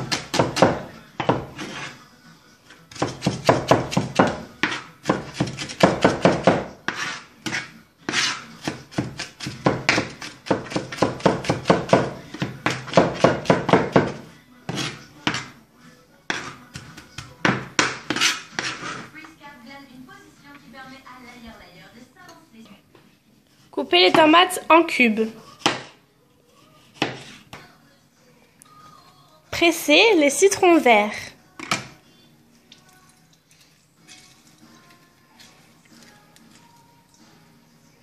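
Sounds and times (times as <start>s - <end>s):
knife chopping on cutting board: 0.0s - 1.9s, 2.9s - 15.5s, 16.3s - 19.1s, 25.6s - 26.0s, 26.9s - 27.5s.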